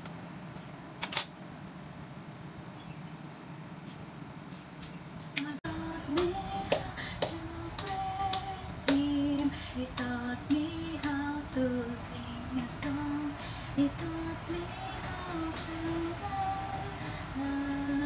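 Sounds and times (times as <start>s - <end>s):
woman singing wordless melody: 5.4s - 18.0s.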